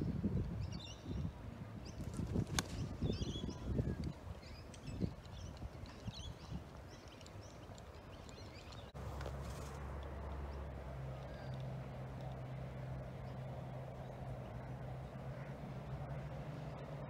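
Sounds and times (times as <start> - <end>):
birds chirping: 0.6 - 9.4, 10.1 - 16.9
steady low hum: 3.6 - 17.0.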